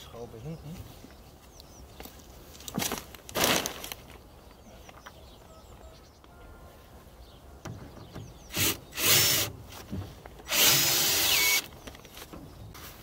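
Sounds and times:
cordless drill driving screw: 8.5 - 9.5, 10.4 - 11.7.

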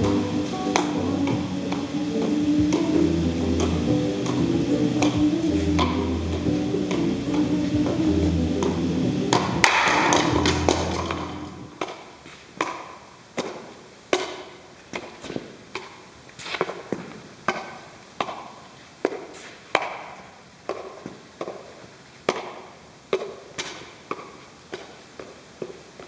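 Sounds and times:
background music: 0.0 - 11.8
juggling clubs slapping into hands: 8.6 - 21.7, 22.3 - 25.3.

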